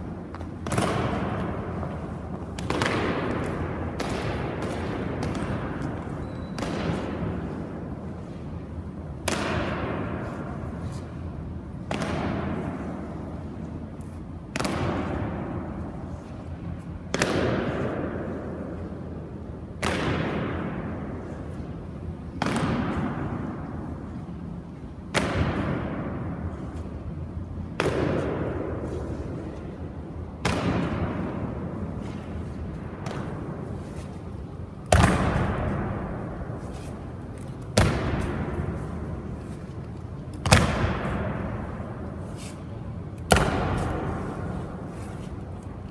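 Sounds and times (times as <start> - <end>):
heavy booms echoing in stone hall: 0.0 - 13.7, 17.1 - 18.9, 19.6 - 21.6, 25.1 - 26.6, 27.7 - 34.2, 34.8 - 42.2, 43.0 - 45.9.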